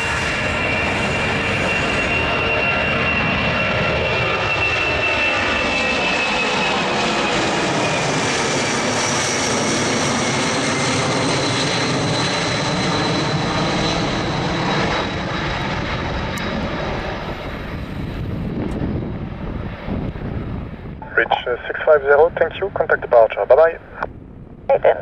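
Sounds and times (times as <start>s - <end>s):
jet engines at takeoff power: 0.0s - 25.0s.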